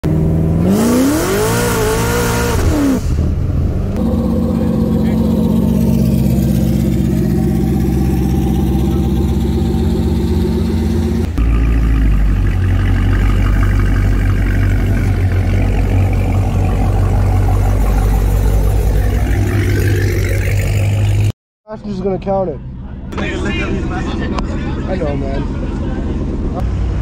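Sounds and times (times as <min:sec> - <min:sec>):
car engine idling with deep drone: 0:00.0 - 0:27.0
car engine passing at low speed: 0:00.2 - 0:21.3.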